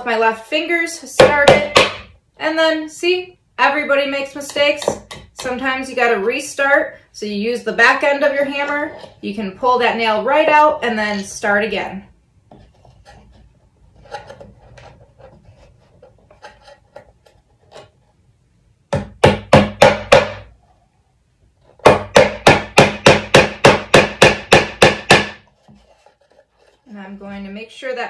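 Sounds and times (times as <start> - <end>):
hammer driving nail into wood: 18.9 - 20.5, 21.8 - 25.4.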